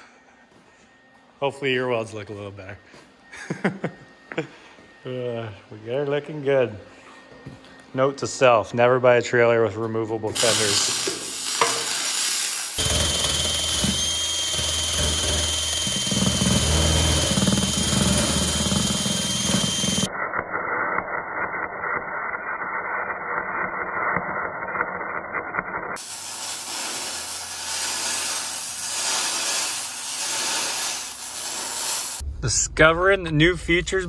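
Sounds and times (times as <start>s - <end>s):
drill with wire brush whining: 10.3s - 20.1s, 26.0s - 32.2s
welding crackle: 10.4s - 20.1s, 26.0s - 32.2s.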